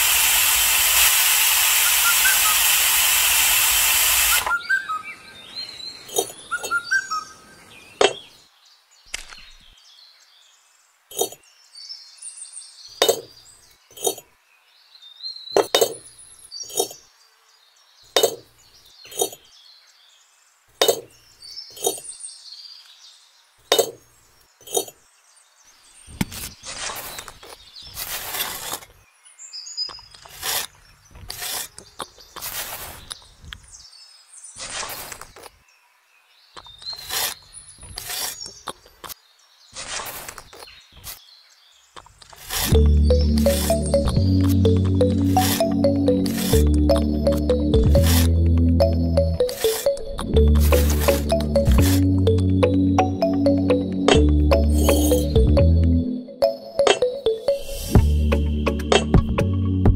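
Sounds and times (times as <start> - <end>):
loud steady hiss: 0.0 - 4.5
birds chirping: 1.7 - 2.8, 3.7 - 59.9
small hard objects clinking: 11.1 - 11.4, 21.7 - 22.1, 24.6 - 25.0.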